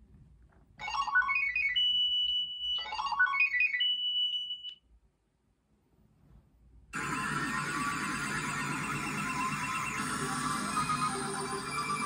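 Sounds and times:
electronic rising notes and tone: 7.0 - 12.0.

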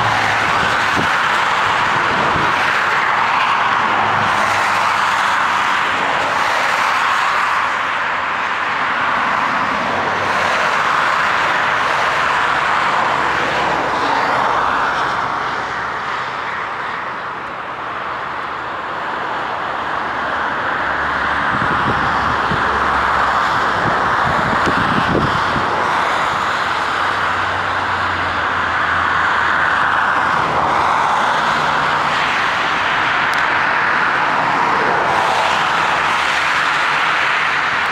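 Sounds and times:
jet engine noise: 0.0 - 37.9.

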